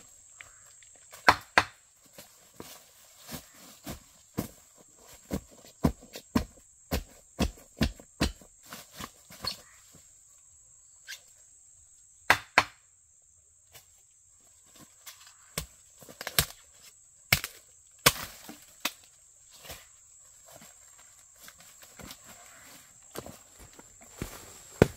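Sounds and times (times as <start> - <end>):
blade chopping bamboo: 15.6 - 16.6, 17.3 - 19.0.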